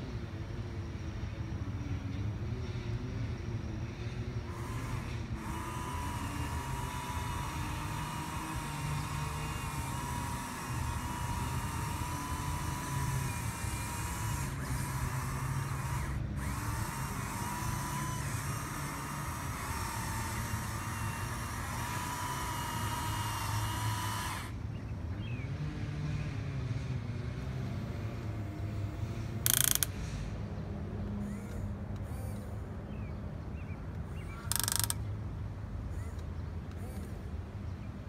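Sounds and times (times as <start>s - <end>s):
toy motors and gearboxes whining: 4.4s - 24.6s, 28.2s - 30.2s, 31.1s - 32.6s, 34.0s - 35.1s, 35.9s - 37.3s.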